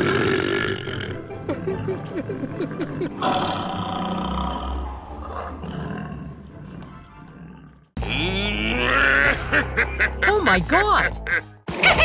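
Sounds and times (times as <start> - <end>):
tiger roaring: 3.1 - 9.1.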